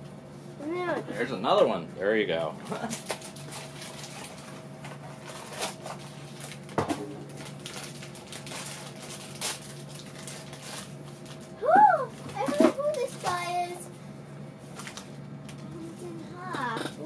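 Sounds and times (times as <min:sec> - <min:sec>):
steady low hum: 0:00.0 - 0:17.0
packaging crinkling: 0:02.9 - 0:11.6.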